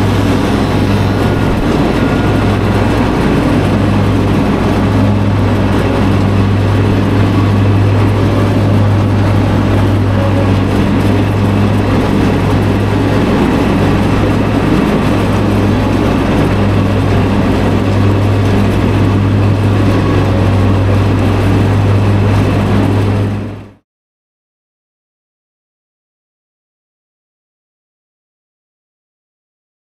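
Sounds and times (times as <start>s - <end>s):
lawn machine engine running: 0.0s - 23.8s.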